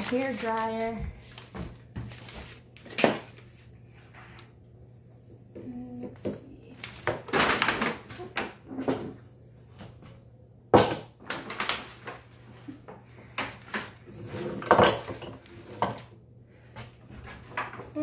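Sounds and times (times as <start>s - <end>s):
rustling: 0.0s - 4.4s.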